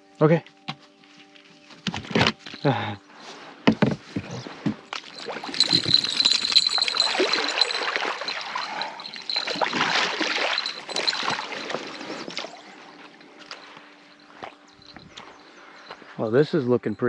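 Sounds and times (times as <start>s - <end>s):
water splashing and trickling: 4.9s - 13.5s.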